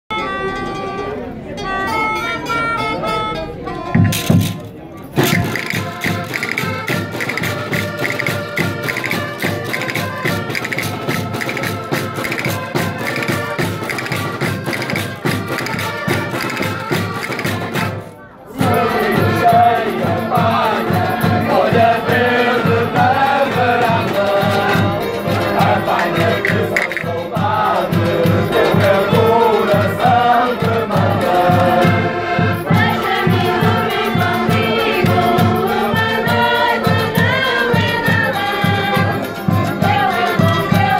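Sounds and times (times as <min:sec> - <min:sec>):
accordions: 0:00.1 - 0:40.9
bass drum and snare drum beat: 0:04.0 - 0:18.0, 0:23.0 - 0:30.2
group of voices singing: 0:05.2 - 0:40.9.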